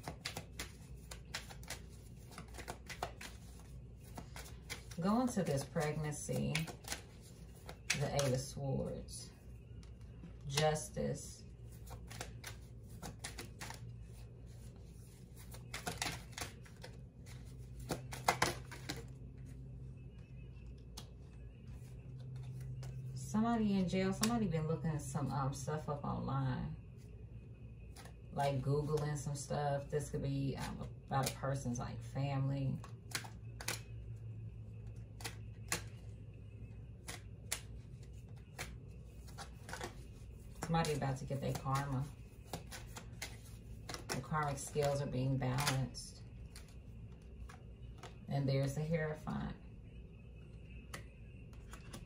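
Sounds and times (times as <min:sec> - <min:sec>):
cards slapping and rustling: 0:00.0 - 0:08.6, 0:11.5 - 0:23.2, 0:32.8 - 0:34.1, 0:34.8 - 0:36.2, 0:36.8 - 0:48.8, 0:50.8 - 0:52.0
low steady hum: 0:00.0 - 0:52.0.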